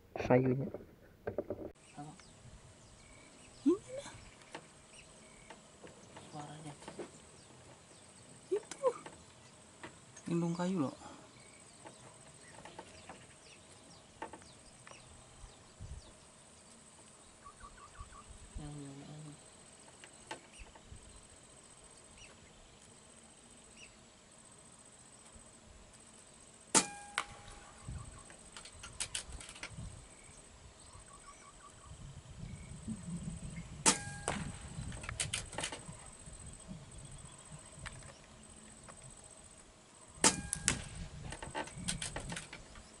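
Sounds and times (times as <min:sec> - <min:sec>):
air rifle shots: 0:26.7 - 0:27.8, 0:33.8 - 0:35.7, 0:40.2 - 0:41.1
quiet rifle clicks: 0:28.3 - 0:29.8, 0:33.9 - 0:35.9, 0:40.2 - 0:42.8.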